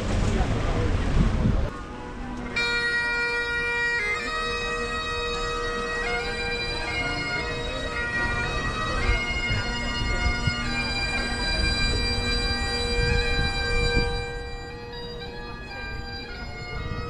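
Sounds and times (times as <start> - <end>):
bagpipe chanter melody: 1.7 - 17.0
bagpipe drones: 1.7 - 17.0.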